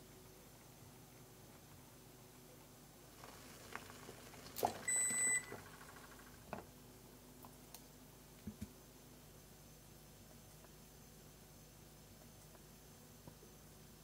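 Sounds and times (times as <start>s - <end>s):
electronic appliance beep: 4.8s - 5.7s.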